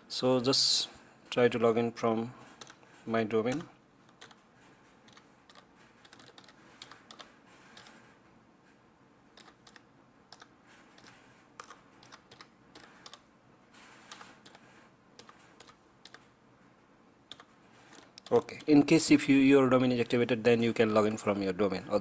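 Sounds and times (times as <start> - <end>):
faint keyboard typing: 2.4 - 16.4, 17.2 - 19.2.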